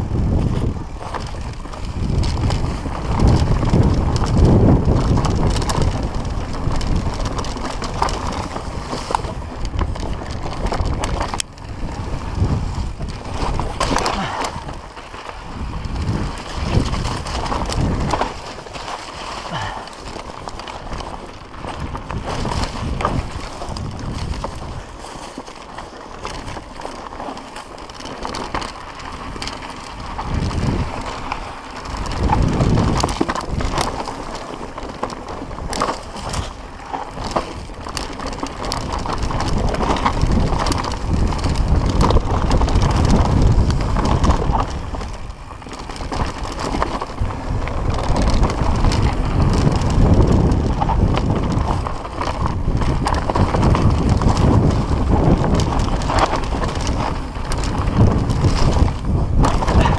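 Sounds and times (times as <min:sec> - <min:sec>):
bike rattles and clicks: 0:00.0 - 0:59.9
bike tyres on dirt: 0:00.0 - 0:59.9
wind buffeting microphone: 0:00.0 - 0:59.9.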